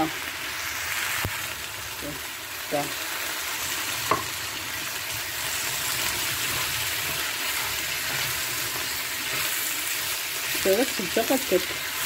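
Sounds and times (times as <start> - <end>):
vegetables sizzling in a pan: 0.0 - 12.0.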